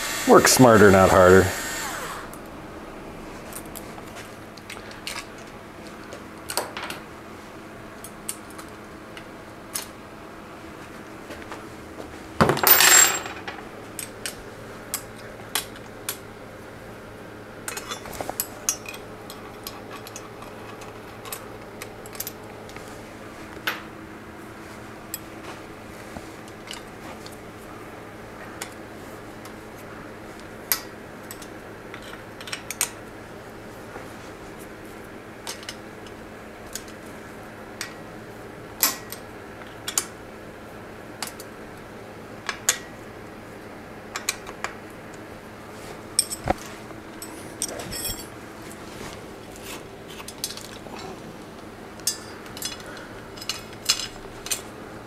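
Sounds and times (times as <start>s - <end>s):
faint steady hum: 0.0s - 55.0s
metal tool clicks and clinks: 47.2s - 48.3s.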